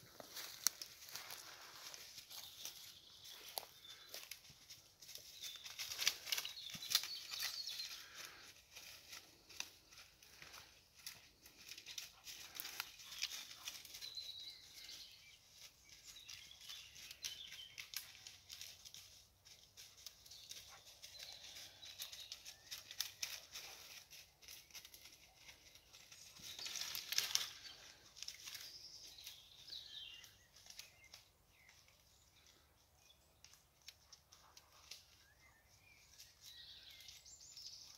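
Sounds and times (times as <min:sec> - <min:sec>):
dry leaves and twigs crackling: 0:00.0 - 0:37.9
faint bird chirps: 0:01.9 - 0:08.3.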